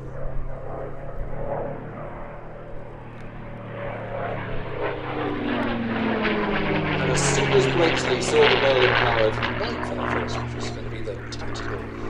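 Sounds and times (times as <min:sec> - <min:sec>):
propeller plane engine drone: 0:00.0 - 0:12.0.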